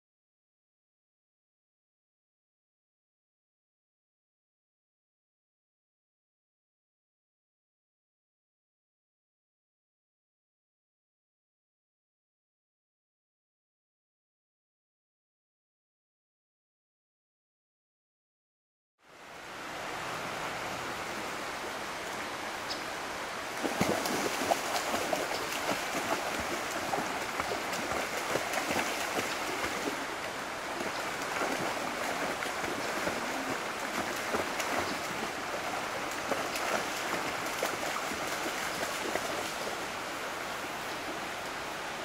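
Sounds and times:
shallow river rushing: 0:19.0 - 0:42.0
dog splashing through water: 0:23.5 - 0:39.9.

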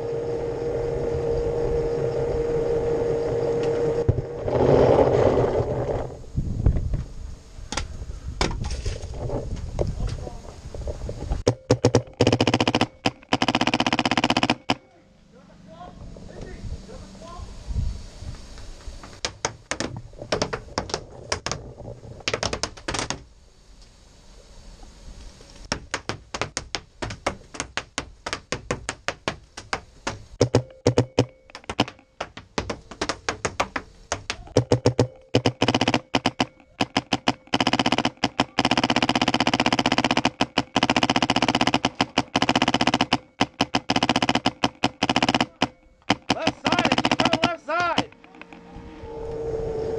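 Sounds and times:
paintball markers firing: 0:11.6 - 0:14.8, 0:25.7 - 0:48.6
balls striking wood: 0:19.1 - 0:23.2, 0:25.7 - 0:48.6.

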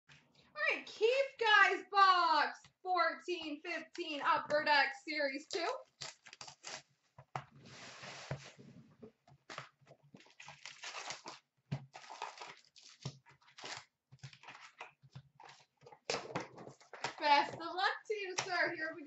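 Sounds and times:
plastic wrap tearing: 0:05.8 - 0:06.9, 0:10.2 - 0:16.3
foil packs crinkling: 0:09.5 - 0:16.0.

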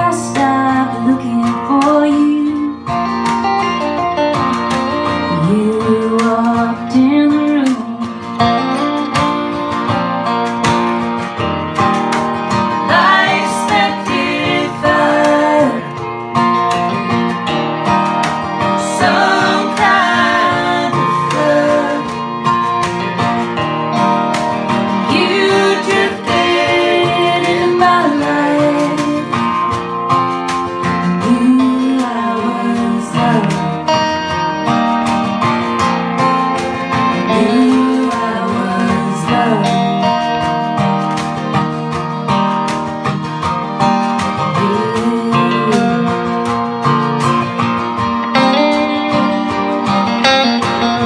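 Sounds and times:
women singing: 0:00.0 - 0:02.8, 0:05.3 - 0:08.3, 0:12.8 - 0:16.1, 0:18.7 - 0:22.4, 0:25.0 - 0:29.6, 0:31.0 - 0:34.0, 0:37.1 - 0:40.3, 0:44.5 - 0:46.5
strummed acoustic guitar: 0:00.0 - 0:51.0.

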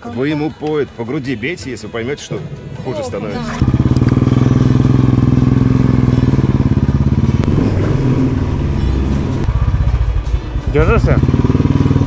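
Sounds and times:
motorcycle engine pulling away: 0:03.2 - 0:12.0.

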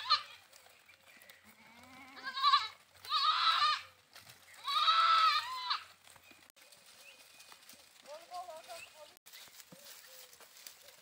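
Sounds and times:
goats bleating: 0:00.0 - 0:00.6, 0:01.4 - 0:04.0, 0:04.6 - 0:06.0.

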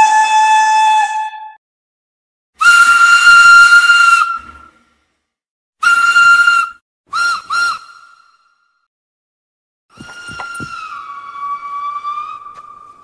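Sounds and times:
steam locomotive whistle: 0:00.0 - 0:01.6, 0:02.6 - 0:04.7, 0:05.8 - 0:08.4.

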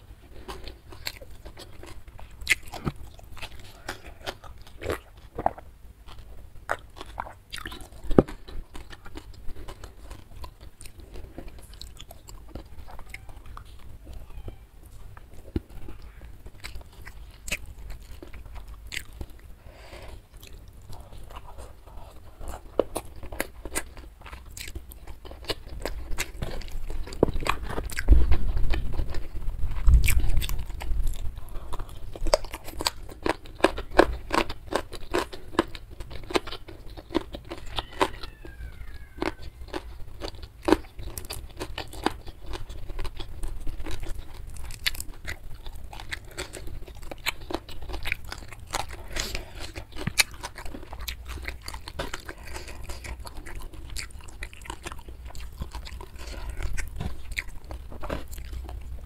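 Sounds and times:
person chewing food: 0:00.0 - 0:59.0
crunchy bites: 0:20.2 - 0:59.0.

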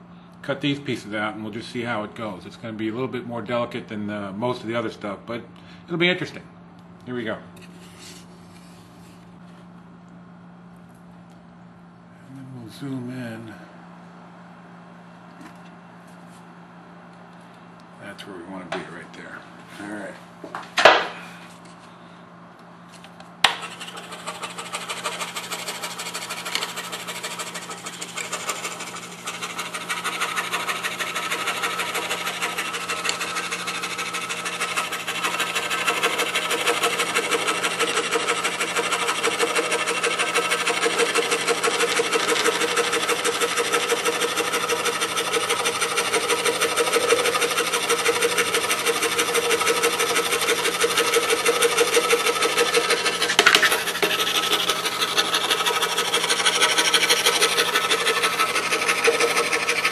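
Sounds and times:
scroll saw cutting plywood: 0:23.5 - 0:59.9.

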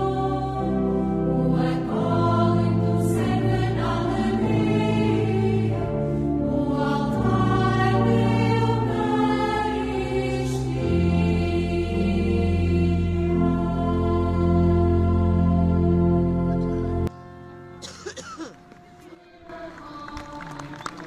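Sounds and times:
choir singing long notes: 0:00.0 - 0:17.1, 0:19.0 - 0:21.0
sustained low accompaniment: 0:00.0 - 0:21.0.

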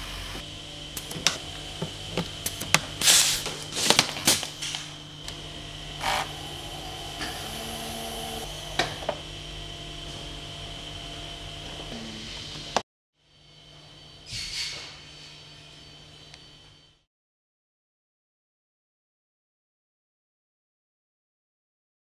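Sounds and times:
workshop hum with high whine: 0:00.0 - 0:17.1
power screwdriver driving screws: 0:06.0 - 0:09.0.

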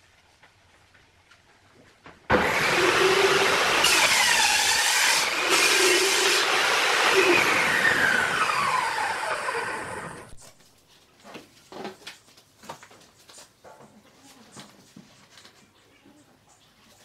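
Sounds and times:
saw blade whine coasting down: 0:02.3 - 0:10.4
table saw cutting: 0:02.3 - 0:10.4.

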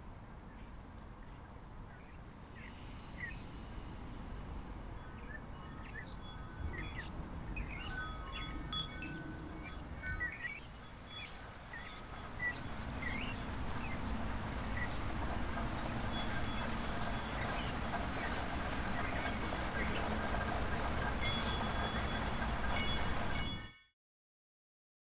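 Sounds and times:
metal wind chime tinkling: 0:05.7 - 0:10.6.

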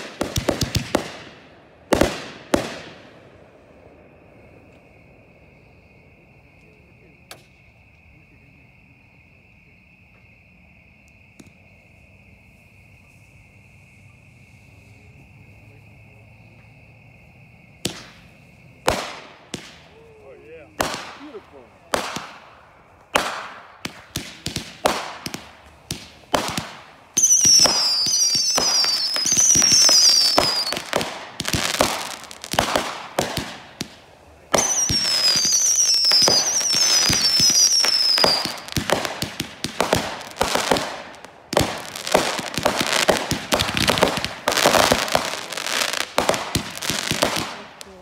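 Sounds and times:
firework crackle: 0:00.0 - 0:05.2, 0:17.8 - 0:48.0
firework bangs: 0:00.0 - 0:05.7, 0:17.8 - 0:48.0
shrill falling whistles: 0:27.2 - 0:32.5, 0:34.6 - 0:38.8.

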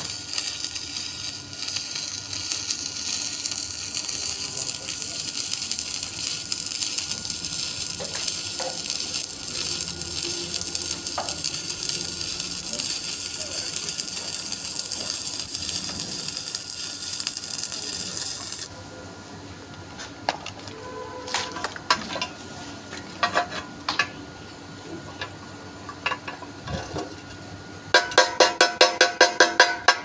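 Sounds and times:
welding arc crackling and sizzling: 0:00.0 - 0:18.7.

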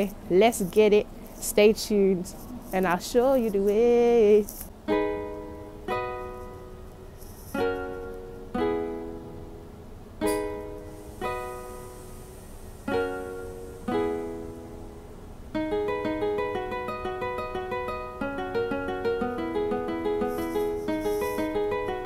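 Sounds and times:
plucked string instrument music: 0:04.8 - 0:12.1, 0:12.9 - 0:22.0.

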